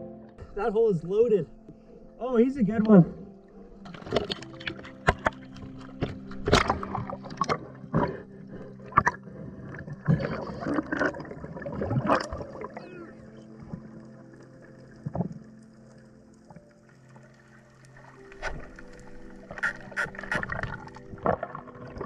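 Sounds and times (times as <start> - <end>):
water splashes and knocks: 3.8 - 8.1.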